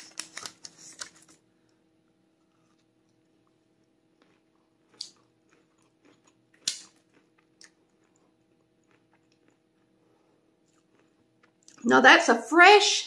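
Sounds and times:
faint steady hum: 0.0 - 13.0
person chewing crunchy candy: 2.5 - 11.8.

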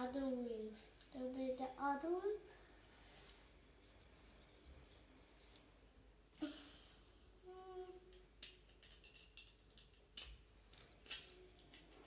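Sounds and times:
plastic bricks clicking together: 8.1 - 12.0.

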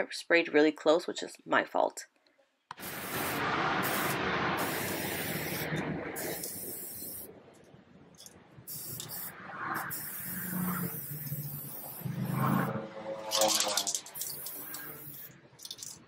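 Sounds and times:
aerosol spray can hissing: 2.7 - 7.3, 8.7 - 12.7, 13.3 - 16.0.

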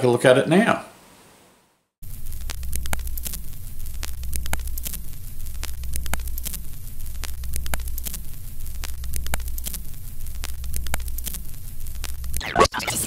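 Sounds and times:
low hum: 2.0 - 12.4
film crackle and pops: 2.0 - 12.6.

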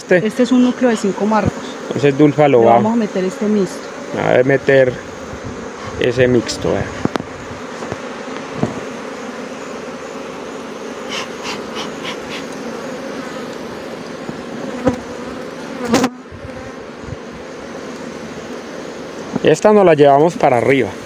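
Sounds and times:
bees buzzing: 0.0 - 21.0
wooden frames knocking on hive box: 6.4 - 9.0.

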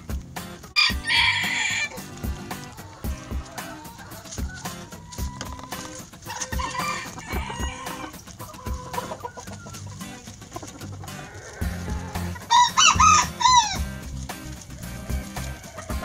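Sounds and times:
chickens clucking: 0.0 - 16.0
rooster crowing: 0.8 - 9.5, 11.0 - 13.9, 14.6 - 16.0.

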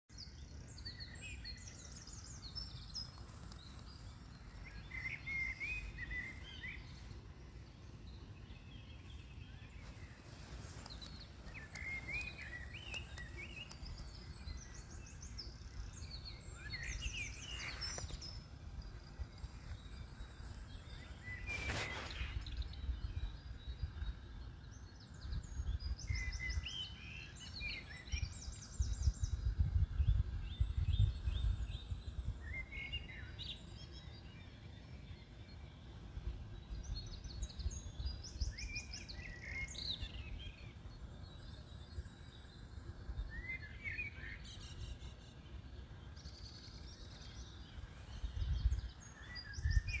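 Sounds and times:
small birds chirping: 0.1 - 50.0
low rumble on microphone: 45.9 - 50.0.

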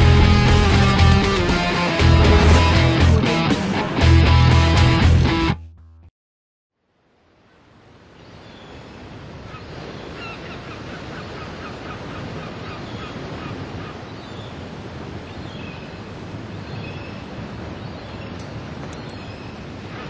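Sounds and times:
ocean surf washing: 0.0 - 4.0
birds calling: 9.4 - 14.6, 16.6 - 20.0.

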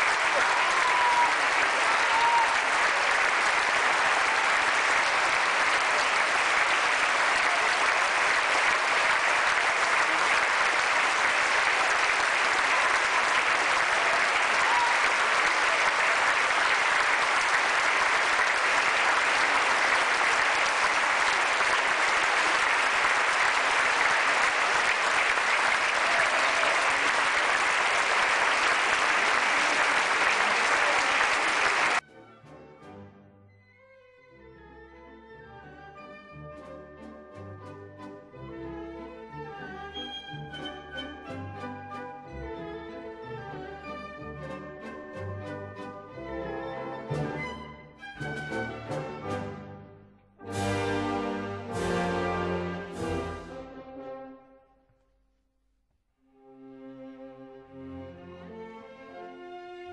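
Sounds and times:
audience applauding: 0.0 - 32.0.

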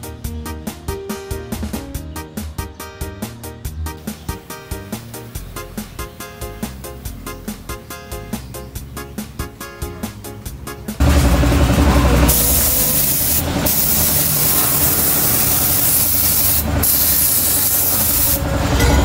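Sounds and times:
air spray gun hissing: 4.0 - 7.2, 11.0 - 18.6.

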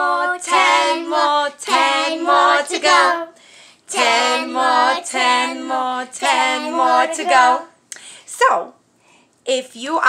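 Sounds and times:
woman and girls singing: 0.0 - 7.8.

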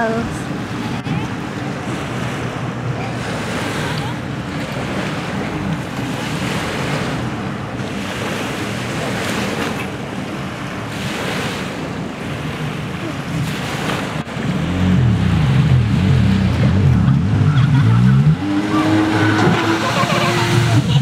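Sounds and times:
jet ski engines: 0.0 - 21.0
water lapping: 0.0 - 21.0.

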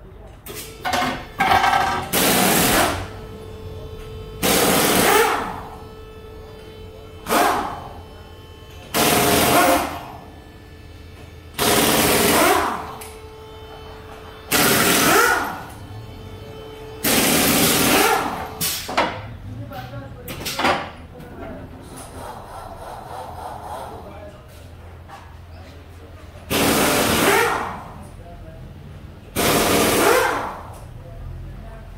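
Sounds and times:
pneumatic impact wrench rattling: 1.4 - 3.0, 8.9 - 10.0, 11.6 - 12.8, 14.5 - 15.7, 17.0 - 19.0, 26.5 - 27.7, 29.4 - 30.6.

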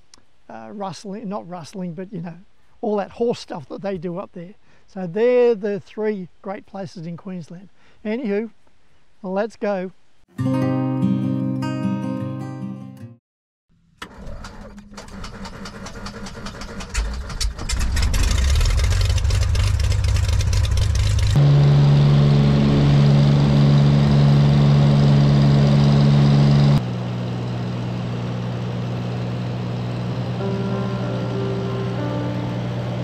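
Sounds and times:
propeller engine starting clicks: 14.0 - 21.4
aircraft engine drone in cabin: 18.0 - 33.0.

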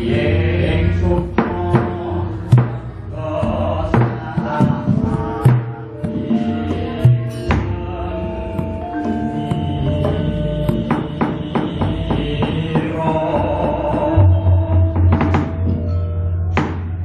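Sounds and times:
gamelan metallic tones: 0.0 - 17.0
sharp wooden knocks: 1.2 - 3.0, 3.9 - 6.4, 10.0 - 14.2, 15.0 - 15.9, 16.6 - 17.0.

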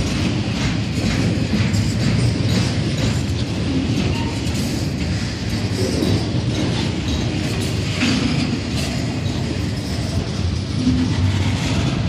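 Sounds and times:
freight train passing: 0.0 - 12.0
rail cars clattering over track: 0.0 - 12.0
steel wheels rumbling on rails: 0.0 - 12.0.

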